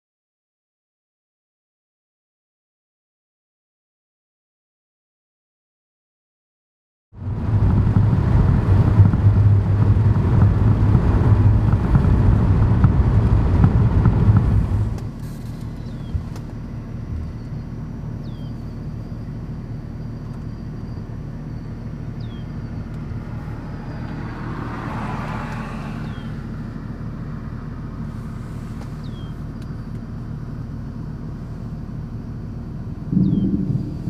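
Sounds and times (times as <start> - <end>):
steady low rumble: 7.2 - 24.7, 25.7 - 34.0
car driving past: 22.3 - 29.3, 33.1 - 34.0.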